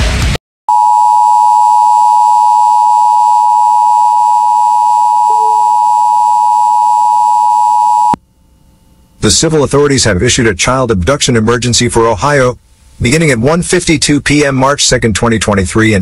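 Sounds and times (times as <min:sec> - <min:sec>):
two-tone alarm: 0:00.7 - 0:08.2.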